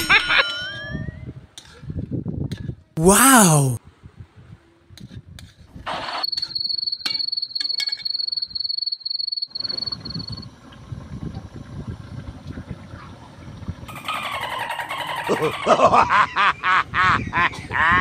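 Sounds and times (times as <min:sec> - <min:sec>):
cricket trilling: 0:06.6 - 0:10.4.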